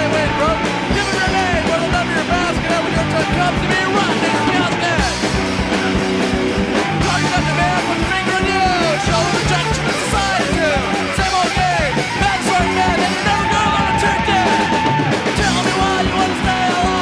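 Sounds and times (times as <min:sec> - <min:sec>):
hardcore punk song: 0:00.0 - 0:17.0.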